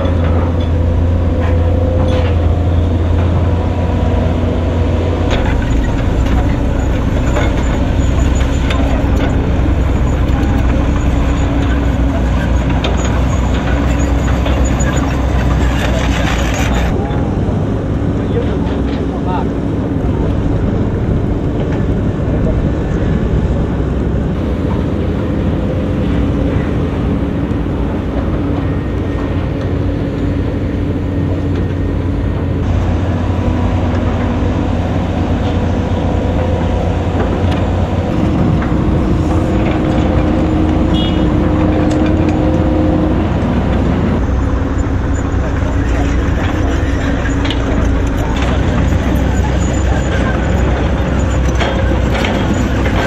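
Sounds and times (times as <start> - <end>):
heavy machine diesel engines: 0.0 - 53.0.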